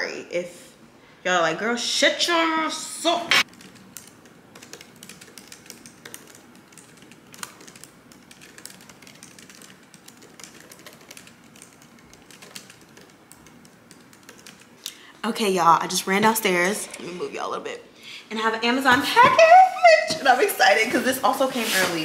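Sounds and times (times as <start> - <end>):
computer keyboard typing: 3.4 - 15.0.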